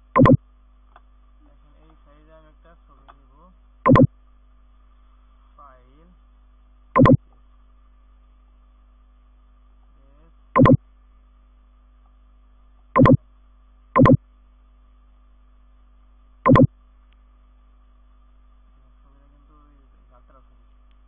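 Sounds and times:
faint electrical hum: 0.0s - 21.0s.

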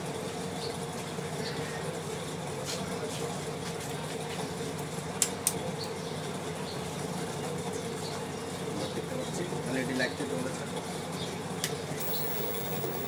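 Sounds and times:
low mechanical hum: 12.0s - 13.0s.

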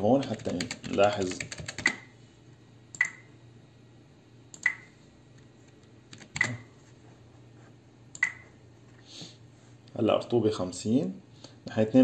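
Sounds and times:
computer mouse clicks: 4.5s - 4.9s, 8.1s - 8.4s.

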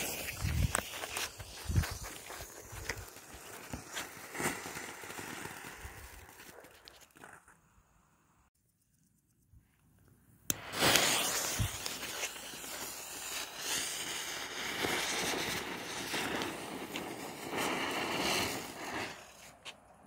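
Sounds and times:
ground firework hissing: 0.0s - 8.5s, 10.5s - 20.0s
sharp cracks: 10.5s - 13.8s.

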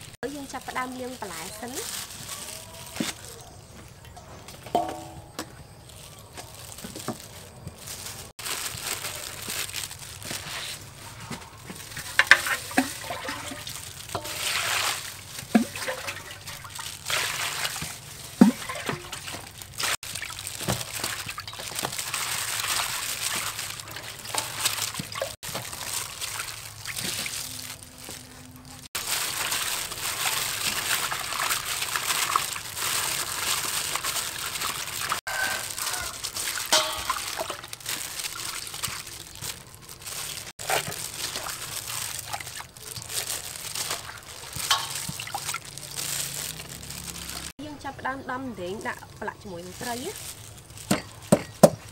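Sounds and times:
water sloshing in a bowl: 11.5s - 47.5s.

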